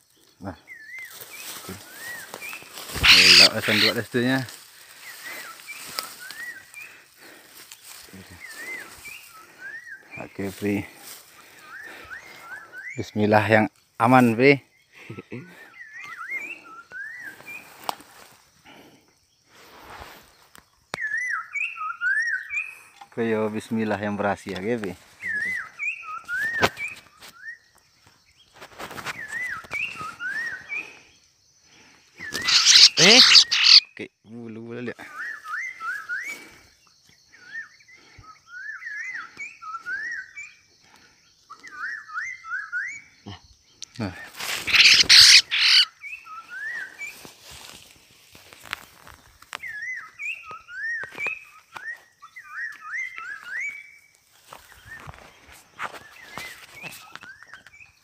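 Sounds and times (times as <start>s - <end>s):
handling clicks and rustling in grass: 0.0s - 9.3s, 17.4s - 18.4s, 26.2s - 30.6s, 47.1s - 52.0s, 52.7s - 58.0s
bird giving wavy whistled calls: 1.8s - 4.4s, 32.2s - 34.0s, 41.5s - 43.2s, 44.6s - 47.1s.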